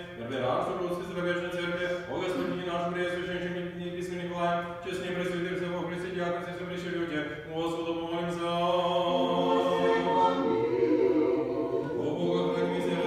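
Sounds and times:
choir chanting a cappella: 8.4 - 13.0.

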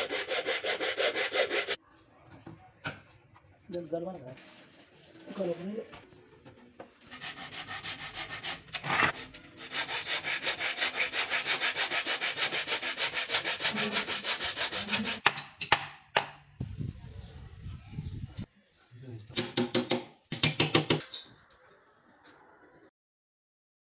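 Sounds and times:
hand saw cutting wood: 0.0 - 1.8, 7.1 - 15.4.

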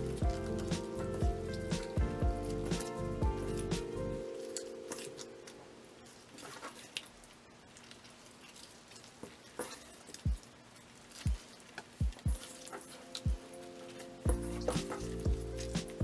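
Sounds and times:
hands squishing cabbage leaves: 0.0 - 16.0.

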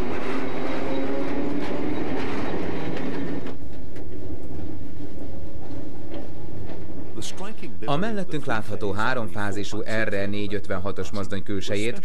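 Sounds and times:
wheels clicking over rails: 0.0 - 7.2
electric train humming: 0.0 - 8.8.

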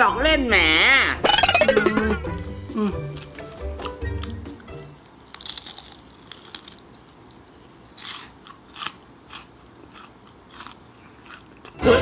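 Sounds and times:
crispy chicken crunching: 3.1 - 11.8.

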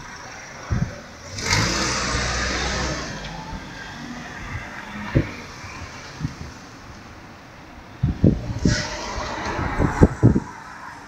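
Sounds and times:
car passing by: 1.2 - 6.6, 8.2 - 11.0.

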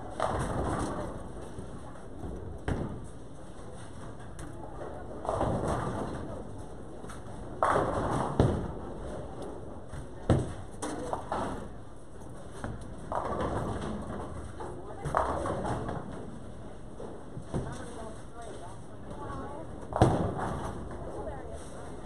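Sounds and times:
bowling balls rolling: 0.0 - 21.7.

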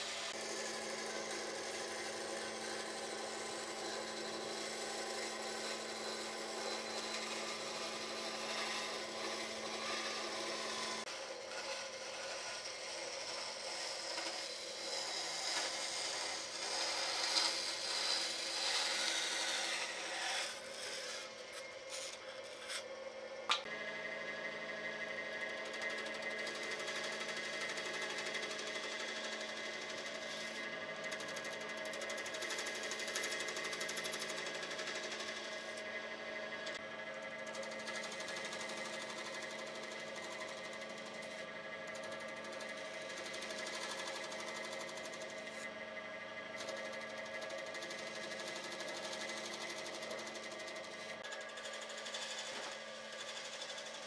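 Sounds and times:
bandsaw cutting wood: 0.0 - 22.8.

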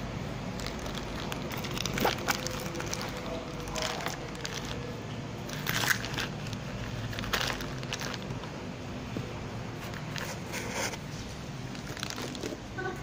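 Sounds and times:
steady low hum: 0.0 - 13.0
plastic wrapping crinkling: 0.5 - 8.6, 9.8 - 12.9.

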